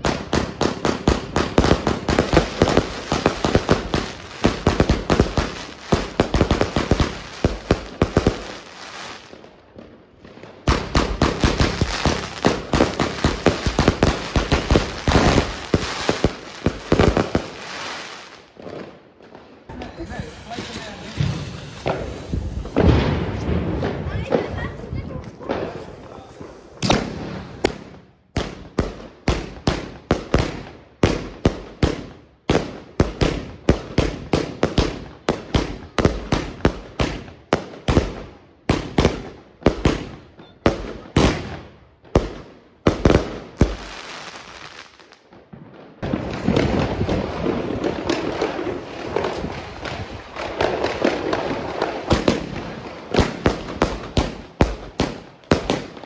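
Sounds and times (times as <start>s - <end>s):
dense continuous firework noise: 0.0s - 56.0s
firework cake bangs: 19.8s - 24.6s.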